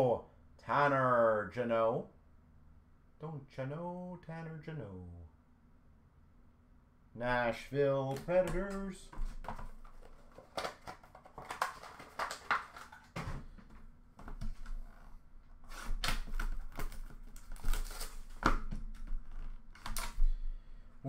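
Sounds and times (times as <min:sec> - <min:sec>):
hands handling cardboard box: 0:08.1 - 0:14.8.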